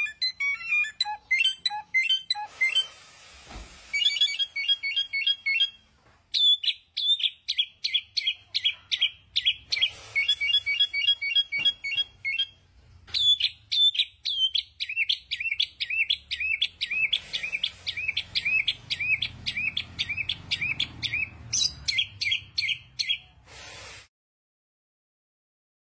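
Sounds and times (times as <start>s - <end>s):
songbird whistling: 0.0s - 2.9s, 3.9s - 23.3s
bird chattering trills: 13.2s - 23.3s.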